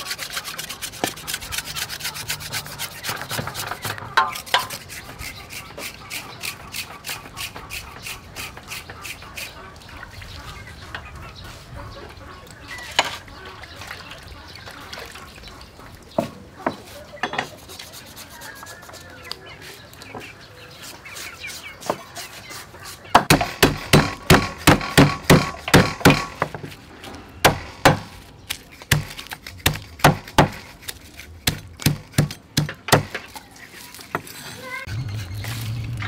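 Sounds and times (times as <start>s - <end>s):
cleaver chopping on wooden block: 23.2s - 26.6s, 27.4s - 28.2s, 28.9s - 30.7s, 31.4s - 33.3s.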